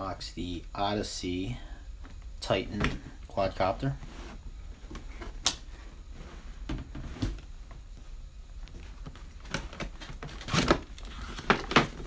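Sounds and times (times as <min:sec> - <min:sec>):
cardboard and packaging rustling: 0:08.6 - 0:12.0.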